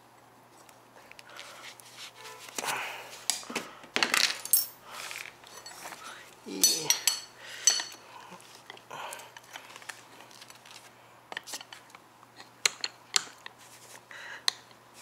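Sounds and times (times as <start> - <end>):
screwdrivers scraping and clinking metal: 4.2 - 8.0, 11.3 - 13.5.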